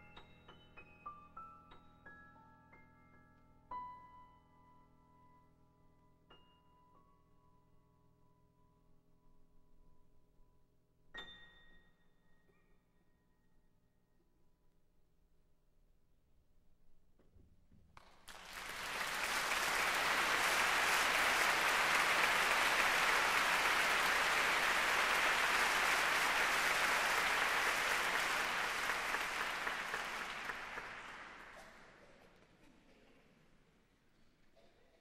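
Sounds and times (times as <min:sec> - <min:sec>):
audience applause: 0:18.0 - 0:32.2.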